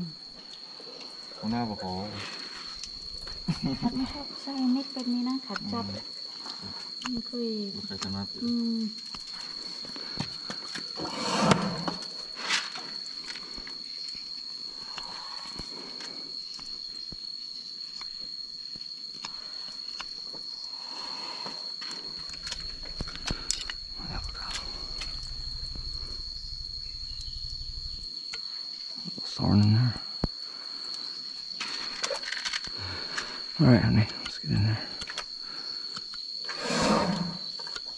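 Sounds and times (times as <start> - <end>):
low pulsing hum: 2.7 - 4.3, 22.0 - 28.1
high-pitched whine: 22.0 - 28.1.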